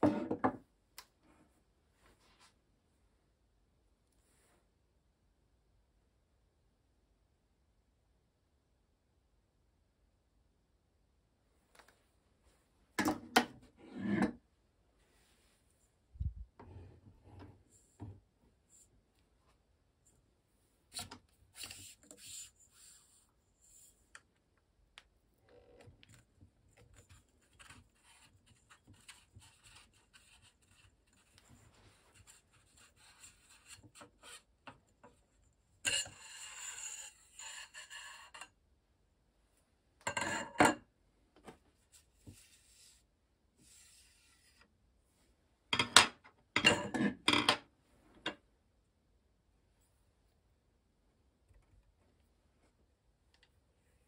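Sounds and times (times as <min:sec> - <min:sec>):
metal scrape: 0:35.9 - 0:38.5.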